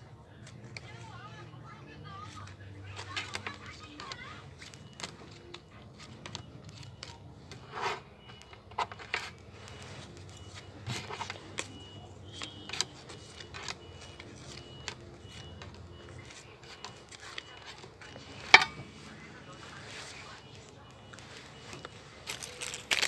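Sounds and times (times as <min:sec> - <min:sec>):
trading cards rustling: 0:02.1 - 0:23.0.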